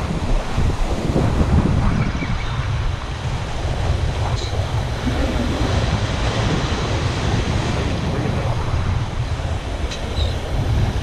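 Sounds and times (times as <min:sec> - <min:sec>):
wind rumbling on microphone: 0:00.0 - 0:11.0
ocean surf breaking on rocks: 0:02.7 - 0:11.0.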